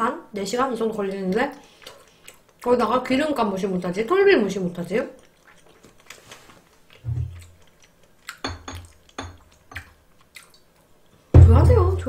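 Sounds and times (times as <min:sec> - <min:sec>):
tableware clicking and knocking: 0:08.4 - 0:09.8
dull thumps: 0:11.4 - 0:12.0.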